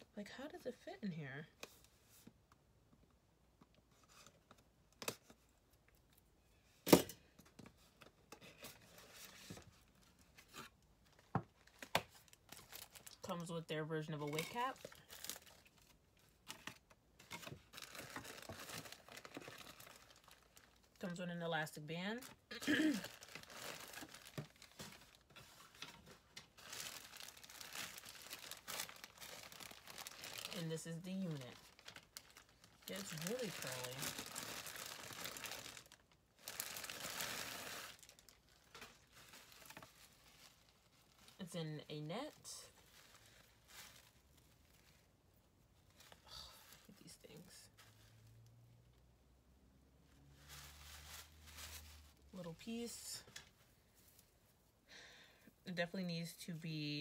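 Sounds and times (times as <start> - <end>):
paper packaging rustling: 7.8 - 13.4, 14.0 - 21.0, 22.2 - 41.4, 42.2 - 45.1, 50.4 - 52.7.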